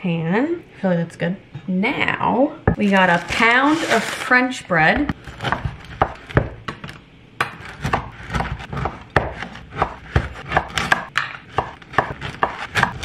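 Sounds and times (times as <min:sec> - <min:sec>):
knife cutting bread crust: 0:07.5 - 0:13.0.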